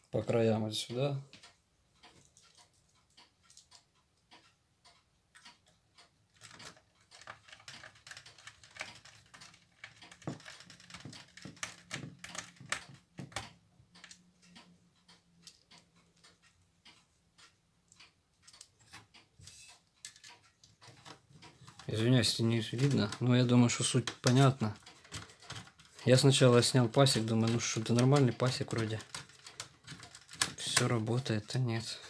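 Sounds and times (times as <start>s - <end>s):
screwdriver clicking on screws: 6.4s - 14.2s, 24.0s - 31.0s.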